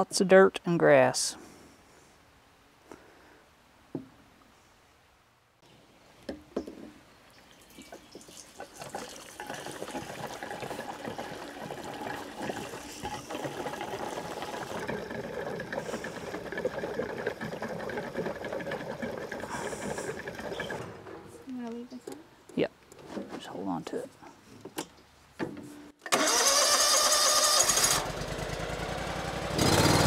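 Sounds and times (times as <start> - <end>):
gasoline pouring into tank: 7.3 - 20.8.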